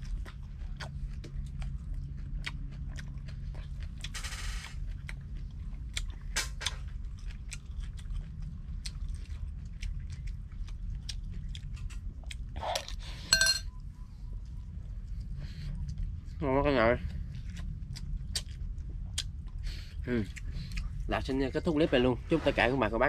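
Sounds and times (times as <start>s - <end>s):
chewing and crunching: 0.0s - 22.8s
sharp ringing sound: 13.3s - 13.8s.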